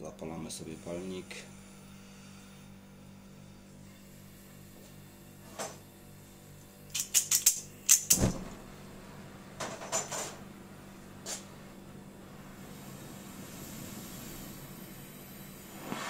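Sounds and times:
sharp metallic clicks and scrapes: 6.9s - 8.2s.

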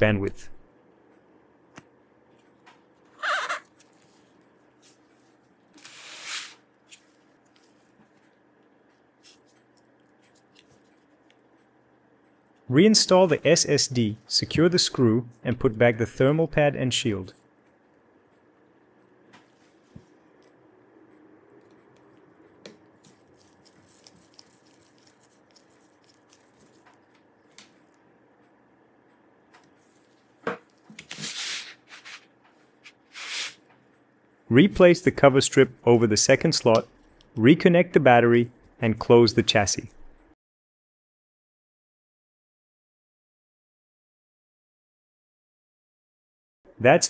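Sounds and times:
squeaky rub: 3.2s - 3.7s.

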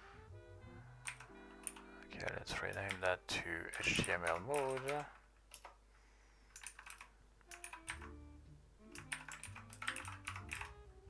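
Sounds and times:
soft background music: 0.0s - 5.1s, 7.4s - 11.0s
computer keyboard typing: 1.0s - 3.1s, 3.7s - 5.8s, 6.5s - 8.1s, 8.9s - 10.8s.

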